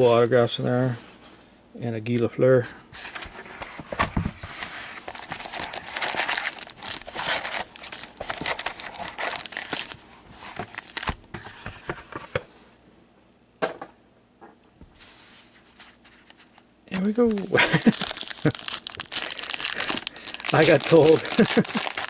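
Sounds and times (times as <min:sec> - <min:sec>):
cardboard and packs rustling: 0:03.0 - 0:12.3, 0:15.7 - 0:22.0.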